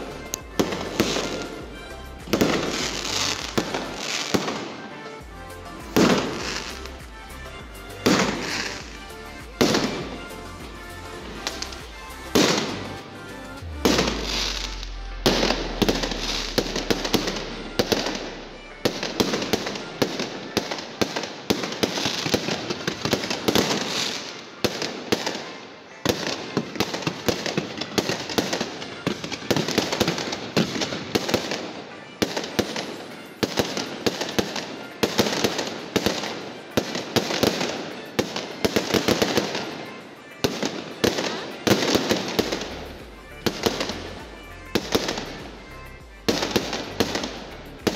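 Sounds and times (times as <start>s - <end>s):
fireworks crackling: 0.0s - 47.9s
loud firework reports: 7.9s - 45.6s.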